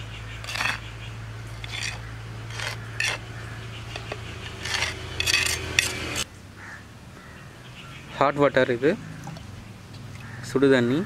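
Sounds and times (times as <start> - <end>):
spoon scraping clay bowl: 0.4 - 0.9, 1.5 - 6.3.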